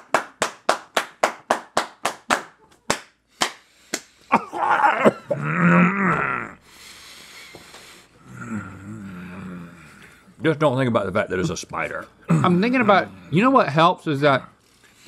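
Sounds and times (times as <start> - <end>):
hands clapping: 0.0 - 4.2.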